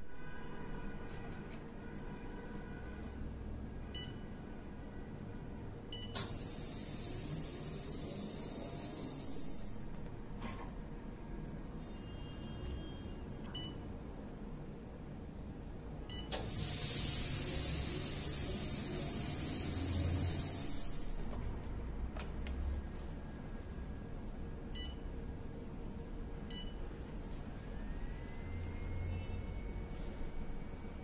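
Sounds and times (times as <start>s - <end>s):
machine beeping: 3.9s - 4.3s, 5.9s - 9.9s, 13.5s - 13.9s, 16.0s - 21.3s, 24.7s - 25.1s, 26.5s - 26.8s
loud hiss of air jetting: 6.2s - 9.8s, 16.4s - 21.3s
faint rising whine: 27.0s - 31.0s.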